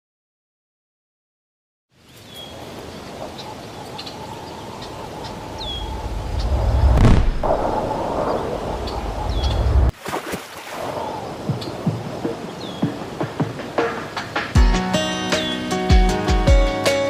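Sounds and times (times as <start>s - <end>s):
bird chirps: 2.0s - 6.8s, 8.2s - 9.9s, 11.0s - 13.0s
low rumble: 5.6s - 9.9s
whoosh: 6.0s - 9.9s.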